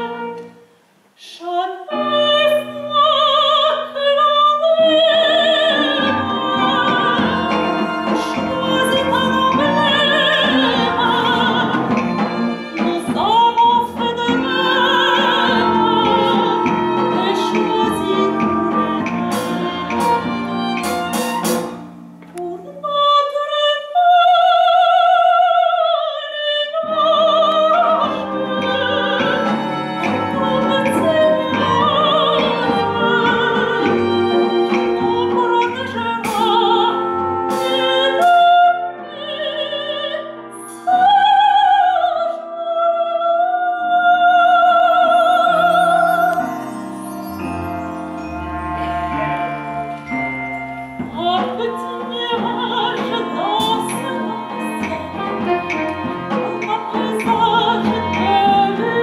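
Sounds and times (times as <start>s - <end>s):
instrumental accompaniment: 0.0s - 1.2s, 1.9s - 25.6s, 26.7s - 42.7s, 43.8s - 59.0s
woman singing operetta: 1.2s - 21.2s, 22.2s - 50.2s, 50.9s - 59.0s.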